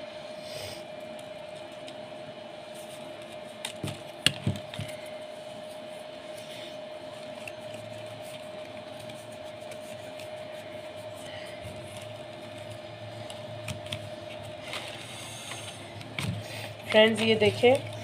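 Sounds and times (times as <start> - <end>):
steady hum: 0.0 - 18.0
paper rustling and tapping: 11.6 - 14.9, 16.0 - 18.0.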